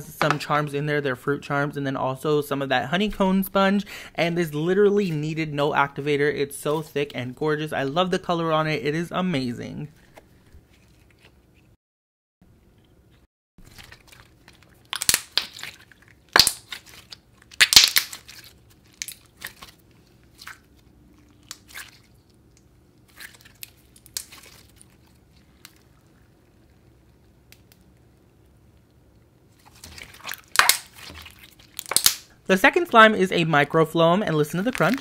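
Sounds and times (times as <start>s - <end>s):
slime squelching wet pops: 13.7s - 24.9s, 29.6s - 32.3s.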